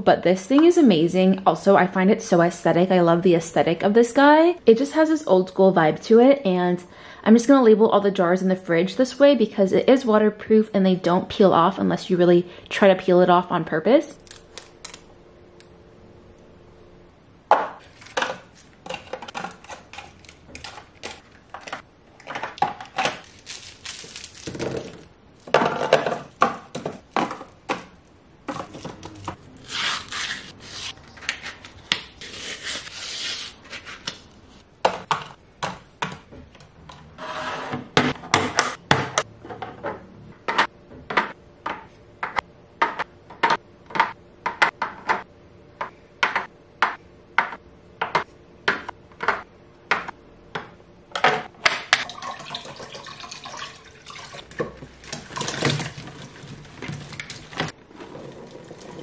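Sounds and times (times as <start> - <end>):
food packaging rustling: 17.8 - 25.5
items tapping in plastic containers: 24.4 - 29.4, 34.8 - 36.7, 40.4 - 52.1.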